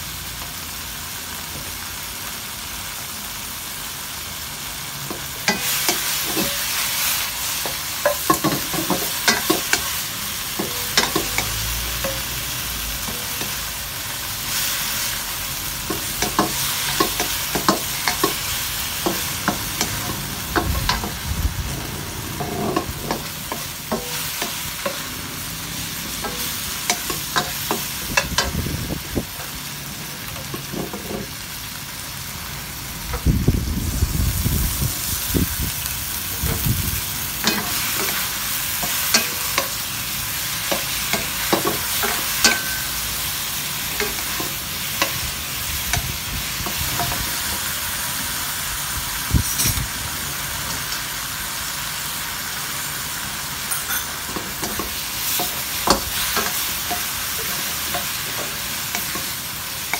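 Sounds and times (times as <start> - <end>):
food sizzling in wok: 0.0 - 59.9
wooden spatula scraping pan: 22.3 - 23.4.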